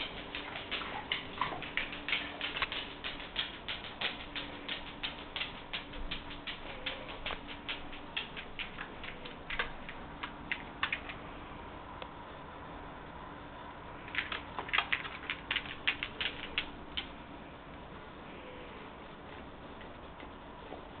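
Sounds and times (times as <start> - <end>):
quick irregular clicking: 0.0 - 11.2, 14.1 - 17.2
faint steady hum: 0.0 - 21.0.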